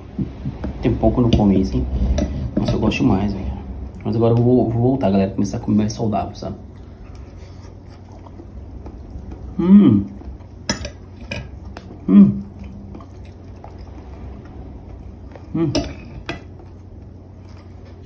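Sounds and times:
low steady hum: 0:00.0 - 0:18.0
man humming: 0:09.5 - 0:10.2, 0:12.0 - 0:12.6, 0:15.5 - 0:15.9.

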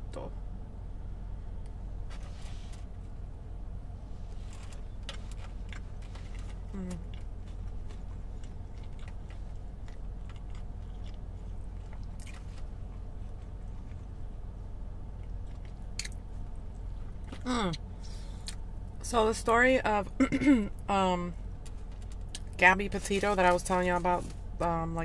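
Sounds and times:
steady low hum: 0:00.0 - 0:25.0
person chewing food: 0:04.4 - 0:14.4, 0:15.1 - 0:17.4.

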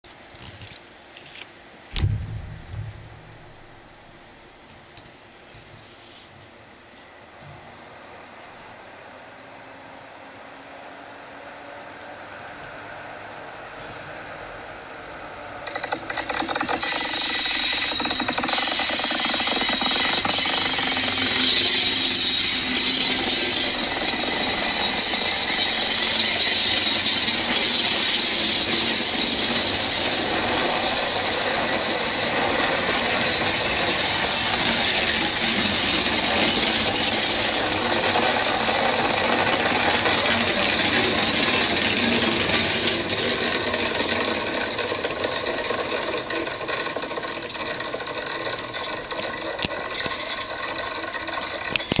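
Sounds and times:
train wheels rattling on track: 0:15.6 - 0:52.0.

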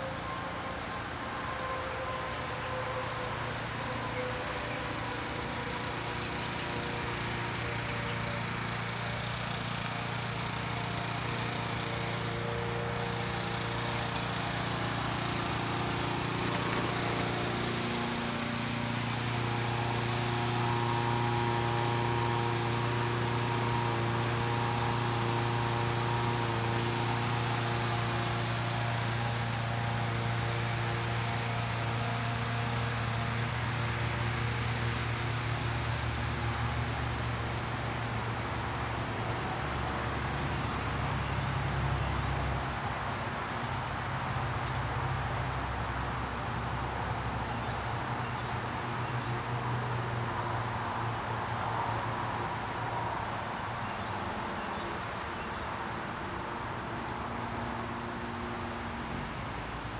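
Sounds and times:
machine drone: 0:00.0 - 0:42.4.

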